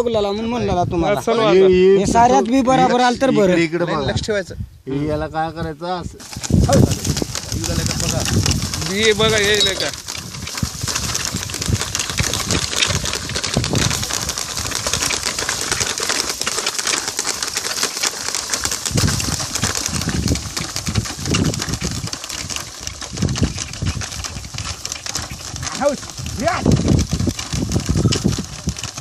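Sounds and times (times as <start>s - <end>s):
seed drill clicking and rattling: 6.2s - 29.0s.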